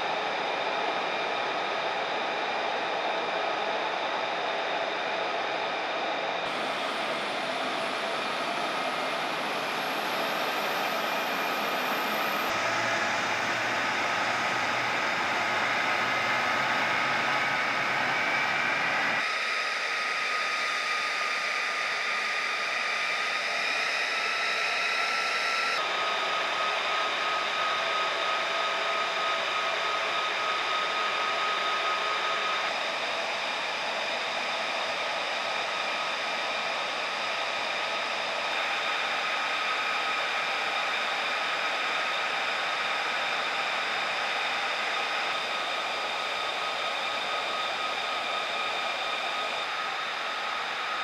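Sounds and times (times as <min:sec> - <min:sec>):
jet turbine whine: 0:00.0 - 0:51.0.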